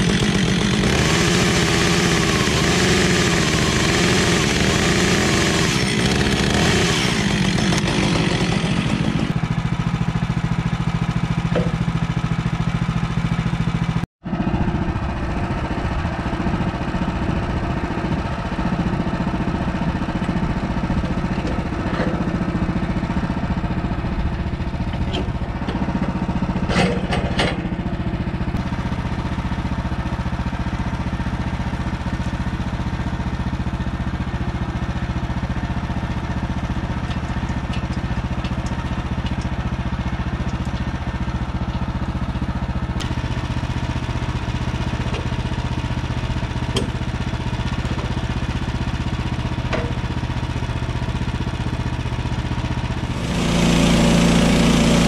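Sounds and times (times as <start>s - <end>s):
saw blade cutting log: 0.0s - 9.4s, 43.0s - 50.8s, 52.9s - 55.0s
sawmill gas engine running: 0.0s - 55.0s.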